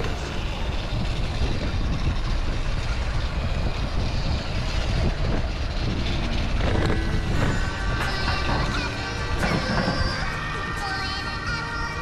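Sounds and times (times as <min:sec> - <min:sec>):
road noise: 0:00.0 - 0:12.0
wind rumble on microphone: 0:00.0 - 0:12.0.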